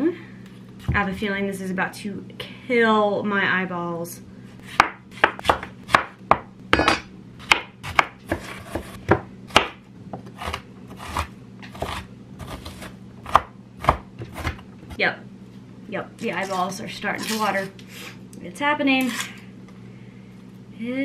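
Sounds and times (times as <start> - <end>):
knife chopping on wooden board: 4.7 - 14.6.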